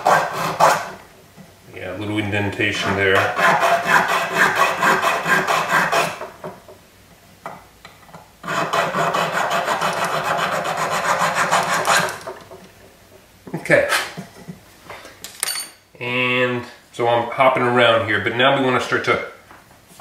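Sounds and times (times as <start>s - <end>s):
needle file rasping on metal: 2.7s - 6.2s, 8.4s - 12.3s.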